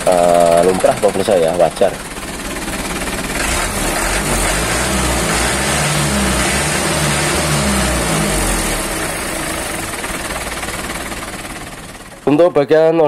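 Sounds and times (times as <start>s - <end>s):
engine rumbling: 0.0s - 13.0s.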